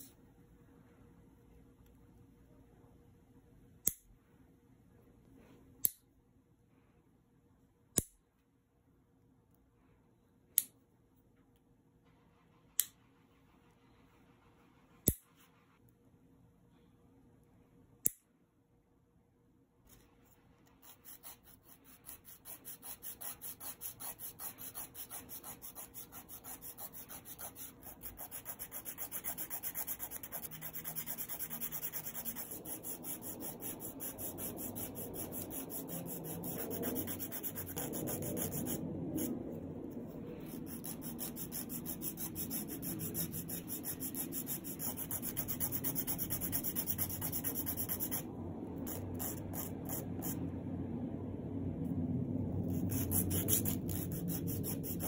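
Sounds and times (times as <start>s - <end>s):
nail file rasping: 20.8s - 39.3s, 40.5s - 48.2s, 52.7s - 55.0s.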